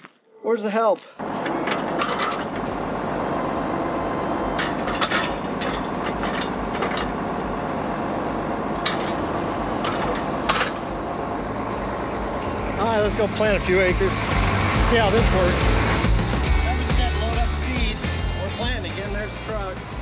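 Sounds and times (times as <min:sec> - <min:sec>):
tractor engine running: 0:01.2 - 0:20.0
sharp metal knocks: 0:08.8 - 0:10.9.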